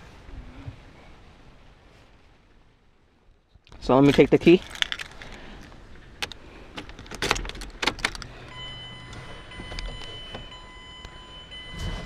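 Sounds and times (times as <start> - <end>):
car key jangling and clicking: 4.1 - 5.4, 6.2 - 11.2.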